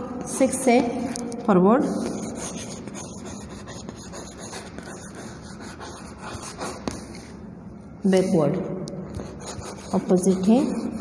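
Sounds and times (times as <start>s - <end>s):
chalk scraping on chalkboard: 1.9s - 7.2s, 9.2s - 11.0s.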